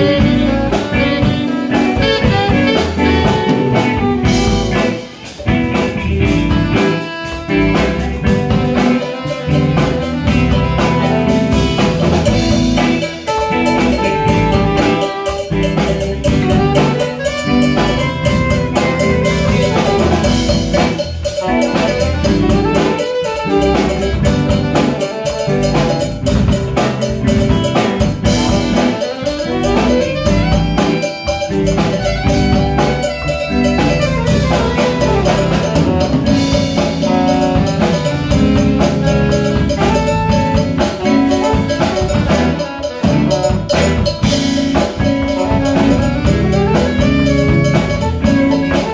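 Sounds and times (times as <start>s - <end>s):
live instrumental band playing: 0.0s - 48.9s
saxophones: 0.0s - 48.9s
steady drum beat: 0.0s - 48.9s.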